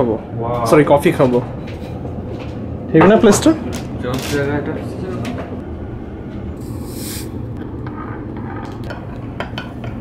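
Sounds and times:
short hiss: 6.6 - 7.3.

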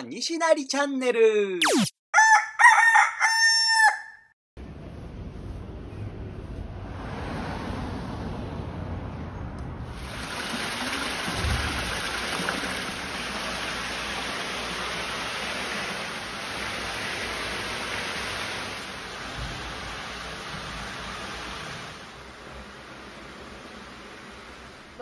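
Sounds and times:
running water rushing: 9.9 - 22.0.

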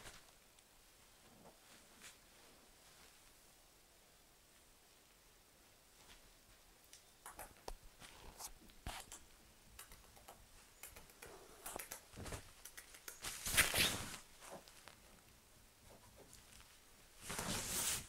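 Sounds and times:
kitten claws scratching duvet: 11.8 - 14.6.

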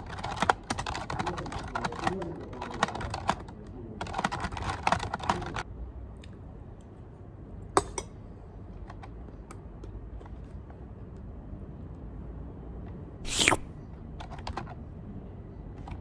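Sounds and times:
typing on a keyboard: 0.0 - 5.6, 14.2 - 14.8.

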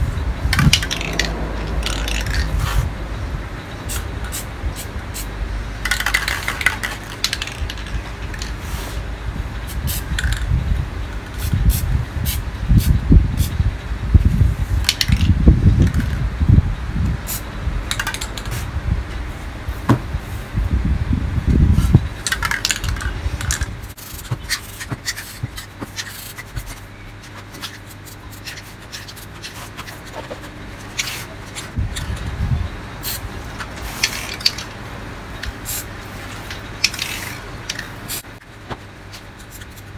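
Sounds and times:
low rumble: 0.0 - 5.9
spray paint can hissing: 0.5 - 2.9, 3.9 - 9.0, 9.7 - 10.5, 11.3 - 13.6, 21.7 - 26.8, 33.8 - 34.7, 35.6 - 38.3.

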